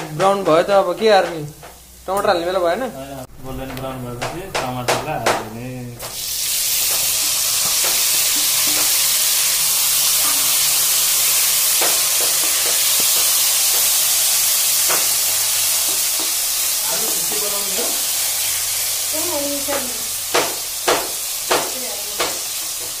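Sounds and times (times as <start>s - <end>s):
tomatoes sizzling in hot oil: 0.0s - 3.3s, 4.6s - 23.0s
wooden spatula scraping wok: 5.5s - 14.1s.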